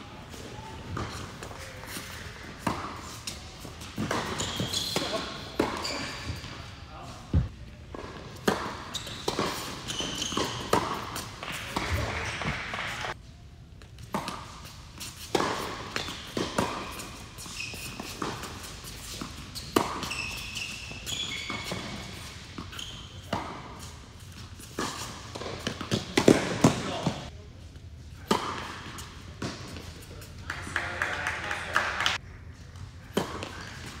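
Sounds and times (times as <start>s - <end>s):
shoe squeaks: 3.9s - 6.7s, 8.8s - 11.2s, 15.9s - 25.4s, 33.5s - 34.0s.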